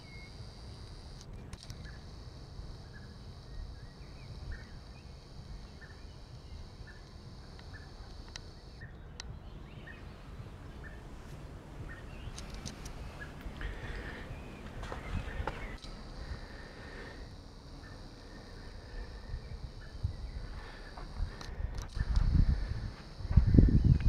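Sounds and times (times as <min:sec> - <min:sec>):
steady high-pitched hiss: 0:00.0 - 0:24.0
sharp clicks: 0:00.8 - 0:02.1, 0:05.4 - 0:09.3, 0:12.2 - 0:13.7, 0:15.6 - 0:16.0, 0:20.9 - 0:22.4
small bird chirping: 0:01.7 - 0:17.1.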